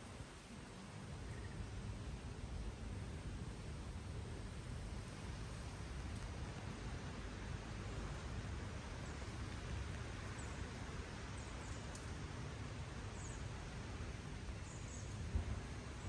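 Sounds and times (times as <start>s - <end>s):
small birds chirping: 13.0s - 13.6s, 14.6s - 15.3s.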